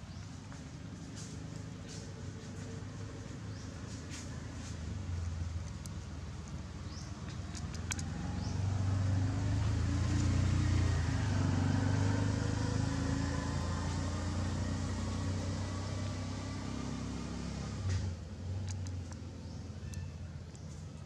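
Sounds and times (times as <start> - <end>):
vehicle engine humming: 0.0 - 21.0
sharp clicks: 5.6 - 8.2.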